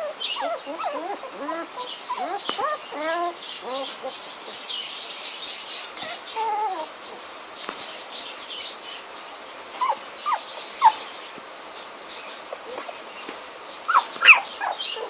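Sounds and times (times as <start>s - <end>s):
puppies whimpering and squeaking: 0.0s - 4.6s, 6.0s - 7.2s, 9.8s - 11.2s, 12.3s - 13.1s, 13.8s - 15.0s.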